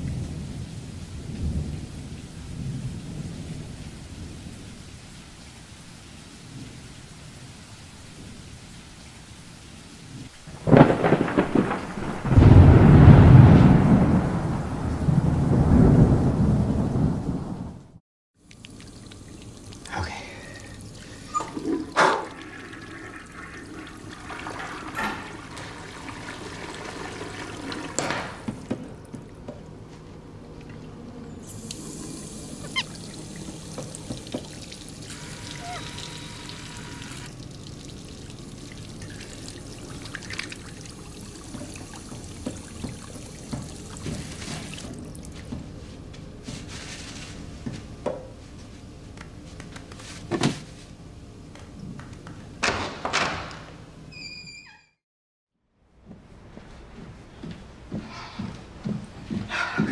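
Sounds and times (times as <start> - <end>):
faucet water splashing: 18.4 - 29.4, 31.4 - 45.4.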